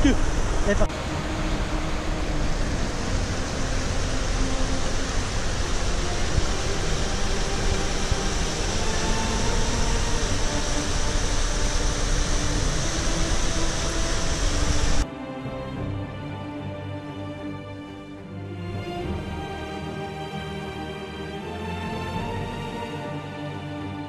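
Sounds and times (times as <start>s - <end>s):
stream rapids and waterfall rushing: 0.0s - 15.0s.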